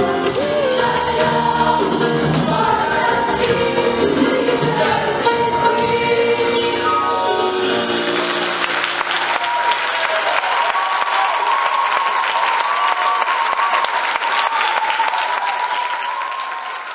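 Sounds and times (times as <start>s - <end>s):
audience applauding: 7.4s - 16.9s.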